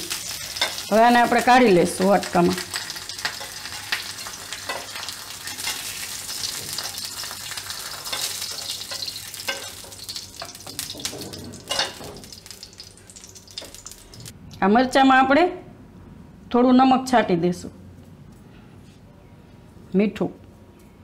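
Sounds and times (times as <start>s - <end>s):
chillies sizzling in hot oil: 0.0s - 14.3s.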